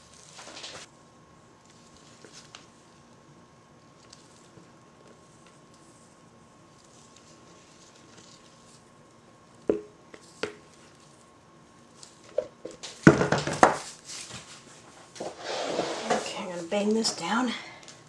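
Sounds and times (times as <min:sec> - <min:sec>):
spatula tapping a bowl: 0:09.7 - 0:10.6
spatula scraping a bowl: 0:15.2 - 0:16.5.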